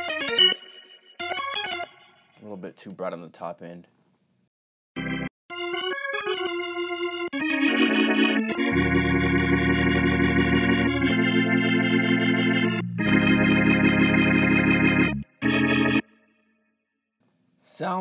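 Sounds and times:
organ chords with tremolo: 0.0s - 2.3s, 5.0s - 16.3s.

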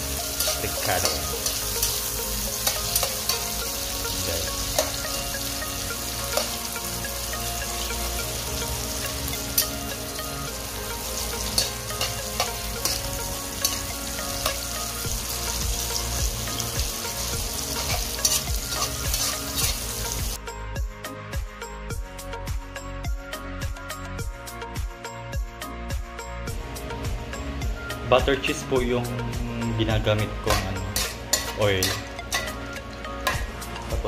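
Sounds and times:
food sizzling in hot oil: 0.0s - 20.4s, 29.9s - 34.0s
music: 0.0s - 34.0s
spatula scraping a pan: 11.1s - 14.7s, 17.5s - 19.9s, 30.4s - 33.5s.

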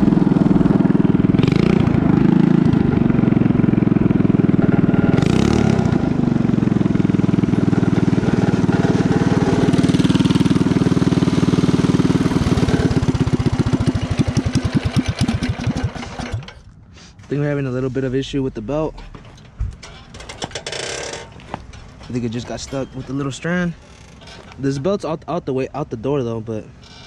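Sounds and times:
small motorbike engine running: 0.0s - 16.6s.

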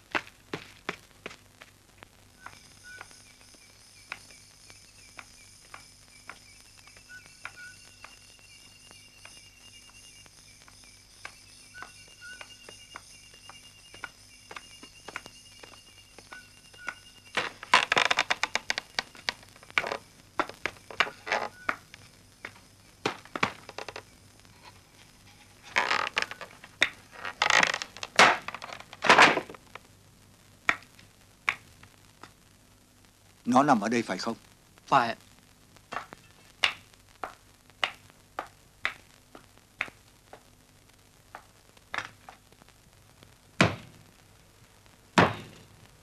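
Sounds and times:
insects chirping in trills: 2.4s - 29.6s.

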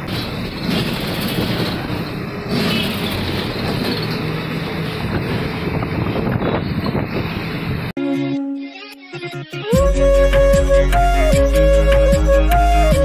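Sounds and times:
road noise: 0.0s - 8.0s
bus engine hum: 0.0s - 8.9s.

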